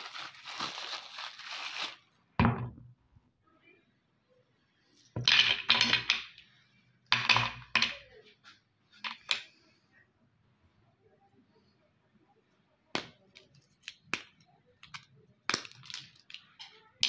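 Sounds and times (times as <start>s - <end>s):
plastic wrapper crinkling: 0.0s - 2.2s.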